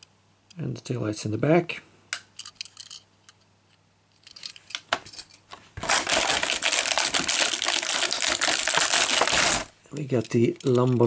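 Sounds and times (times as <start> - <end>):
plastic tray crackling and rattling: 5.8 - 11.0
plastic clicks: 10.0 - 11.0.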